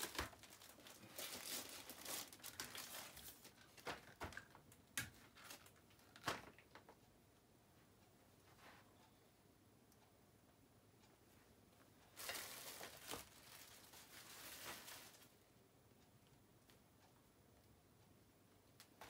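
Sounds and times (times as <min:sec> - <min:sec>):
plastic packaging crinkling: 0:00.0 - 0:04.5, 0:12.1 - 0:15.4.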